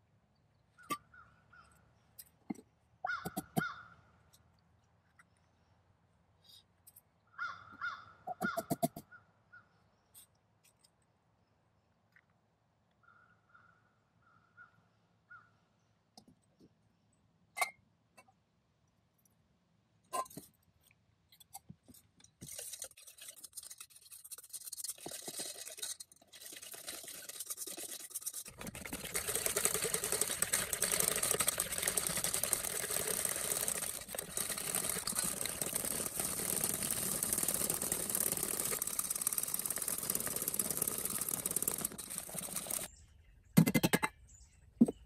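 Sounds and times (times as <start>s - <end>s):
whisk scraping metal pot: 22.4s - 42.9s.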